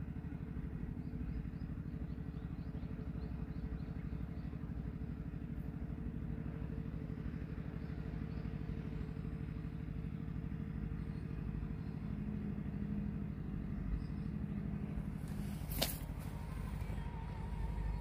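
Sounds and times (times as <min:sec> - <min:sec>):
engine running: 0:00.0 - 0:18.0
faint steady hum: 0:00.0 - 0:18.0.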